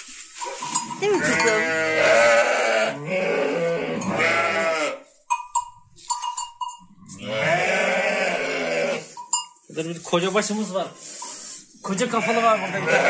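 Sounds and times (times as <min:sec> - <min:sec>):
sheep bleating: 0:01.0 - 0:05.1, 0:07.1 - 0:09.2, 0:12.0 - 0:13.0.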